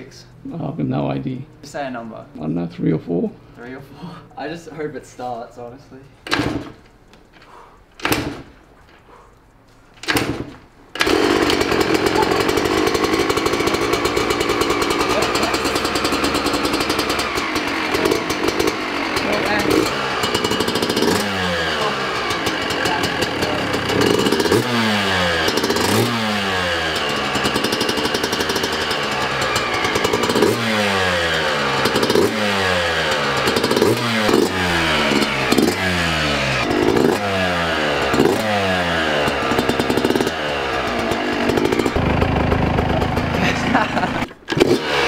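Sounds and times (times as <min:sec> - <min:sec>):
dirt bike engine revving: 0:10.0 - 0:45.0.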